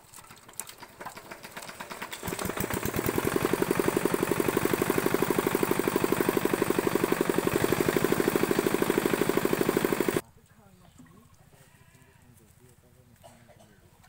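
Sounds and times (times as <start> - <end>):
small engine running: 0.3 - 10.2.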